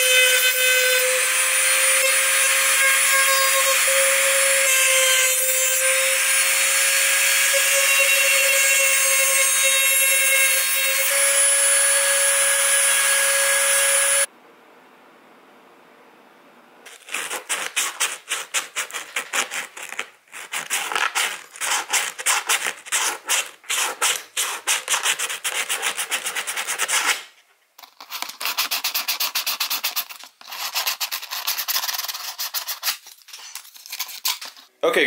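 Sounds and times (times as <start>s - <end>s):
sandpaper scraping plastic: 16.9s - 34.7s.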